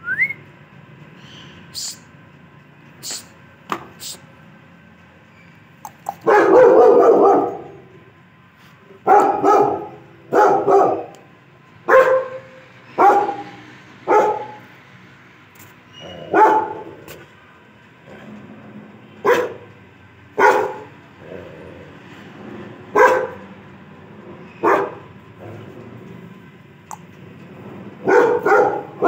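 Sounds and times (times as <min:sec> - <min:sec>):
dog barking: 0:06.1 - 0:07.9, 0:09.0 - 0:11.2, 0:11.9 - 0:14.6, 0:16.1 - 0:17.1, 0:19.2 - 0:19.7, 0:20.4 - 0:20.9, 0:22.9 - 0:23.4, 0:24.6 - 0:25.1, 0:28.0 - 0:29.0.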